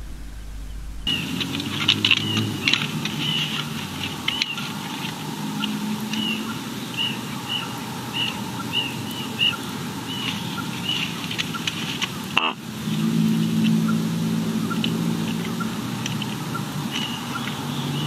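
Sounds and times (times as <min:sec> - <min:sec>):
steady low hum: 0:00.0 - 0:03.1
small bird chirping: 0:02.2 - 0:11.7.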